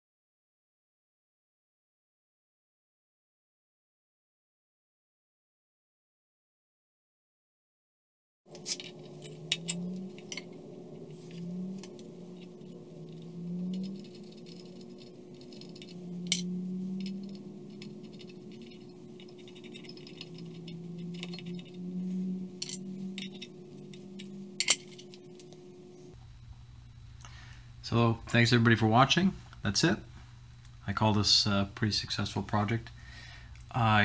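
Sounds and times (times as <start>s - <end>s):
metallic clicks and clinks: 8.5s - 10.6s, 11.8s - 21.8s, 22.5s - 25.6s
steady low hum: 8.5s - 34.0s.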